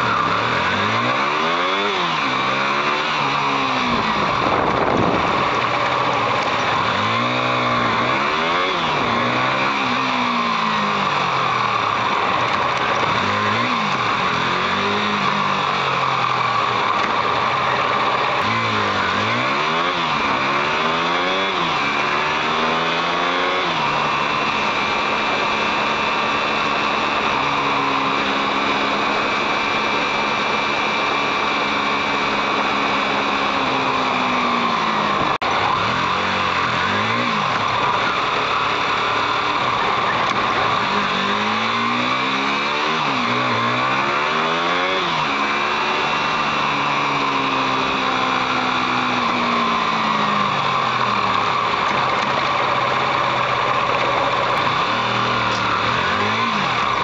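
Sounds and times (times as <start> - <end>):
constant rushing noise: 0.0 - 57.0
motorcycle engine revving: 0.0 - 57.0.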